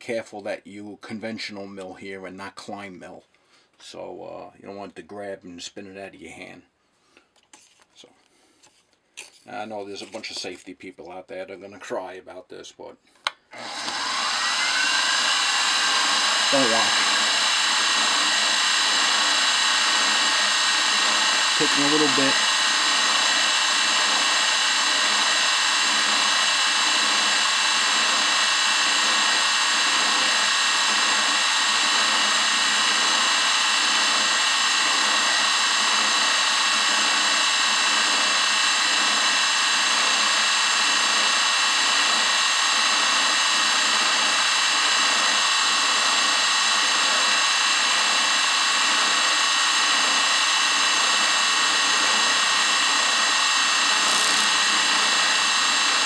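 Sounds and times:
milling machine whining: 0:13.5 - 0:56.0
end mill cutting metal: 0:13.6 - 0:56.0.

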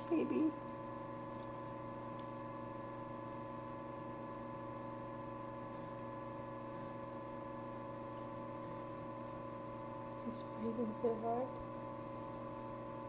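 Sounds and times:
fan motor humming: 0:00.0 - 0:13.0.

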